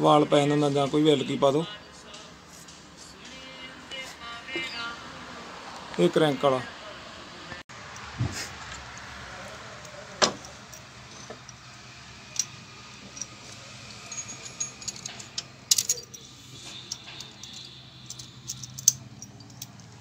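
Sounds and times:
metal chain clinking: 9.8 - 20.0.

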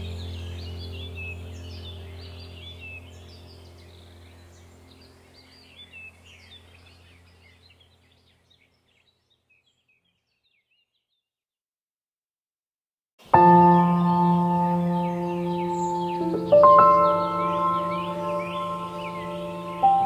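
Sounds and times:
low steady drone: 0.0 - 8.0, 13.3 - 20.0
small birds chirping and singing: 0.0 - 11.4, 13.2 - 20.0.

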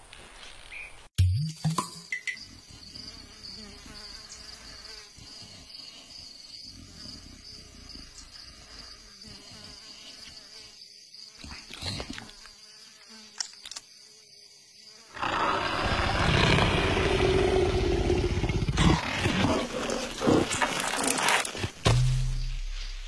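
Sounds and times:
faint insects: 2.0 - 23.0
cartoon leopard roar: 15.1 - 21.4.

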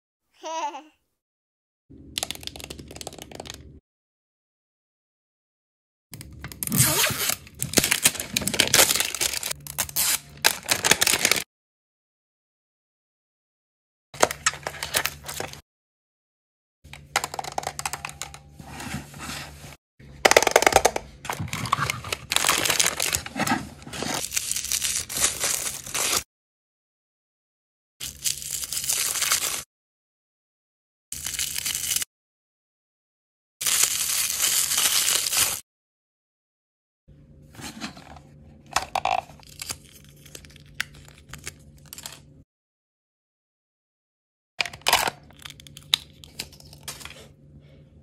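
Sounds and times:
foil wrapper crinkling: 6.7 - 11.4, 21.5 - 26.2, 28.0 - 29.6, 33.6 - 35.6
plastic toy pieces rustling: 21.3 - 26.2.

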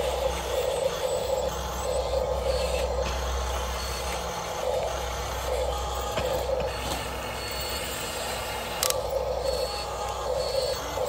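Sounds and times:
steady low hum: 0.0 - 11.0
toy excavator motors whirring: 0.0 - 11.0
pulsing mid-pitched tone: 9.0 - 11.0.

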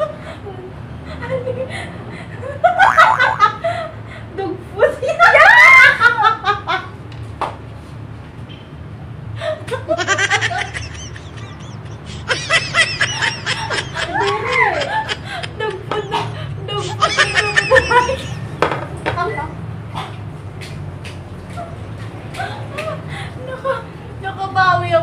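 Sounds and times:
people laughing hard: 9.8 - 18.6.

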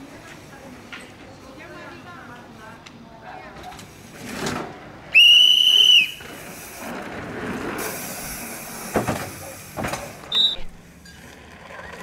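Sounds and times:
mountain bike rushing past: 4.2 - 10.7
shrill whistle blast: 5.1 - 6.3, 10.3 - 10.7.

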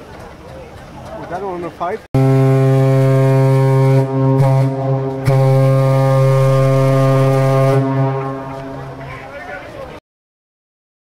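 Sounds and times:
low steam whistle: 2.2 - 8.9.

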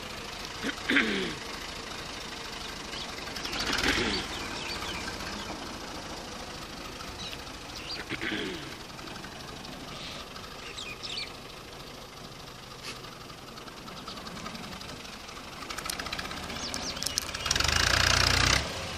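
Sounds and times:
tractor diesel engine running: 0.0 - 18.9
bird chirps: 2.6 - 5.6, 7.0 - 8.2, 9.9 - 11.6, 13.9 - 14.3, 16.5 - 17.7.

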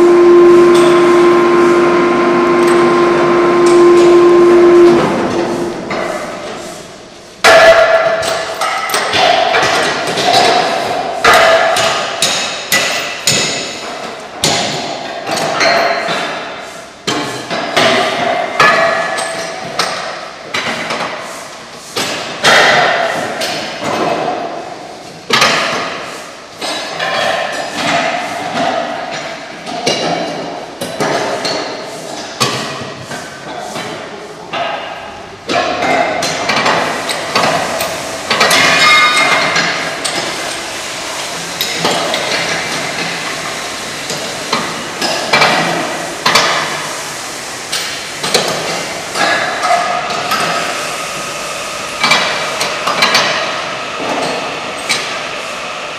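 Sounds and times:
metallic clanks and pings: 38.3 - 39.8.

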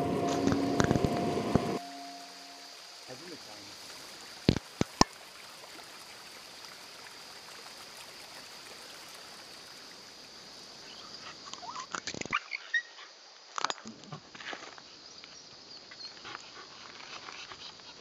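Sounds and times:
brief chirps: 0.0 - 2.6
high-pitched insect drone: 0.0 - 3.8
rustles: 13.5 - 18.0.

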